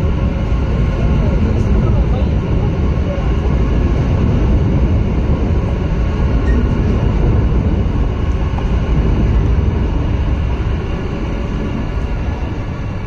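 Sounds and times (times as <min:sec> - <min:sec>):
metro train rumbling on bridge: 0:00.0 - 0:13.0.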